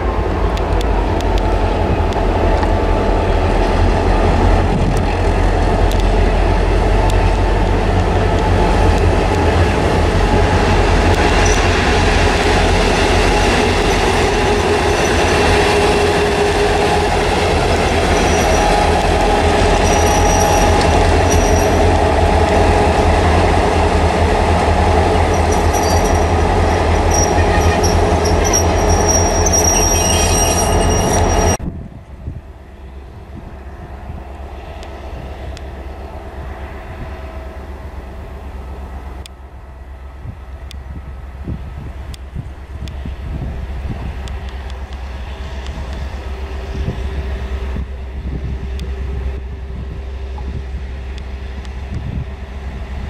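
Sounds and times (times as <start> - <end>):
locomotive engines droning: 0.0 - 53.0
high wheel squeal: 11.3 - 22.9, 24.9 - 31.6.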